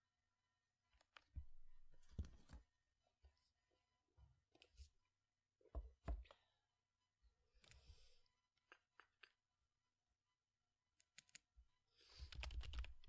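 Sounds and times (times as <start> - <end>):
keyboard keystrokes: 12.3 - 13.0.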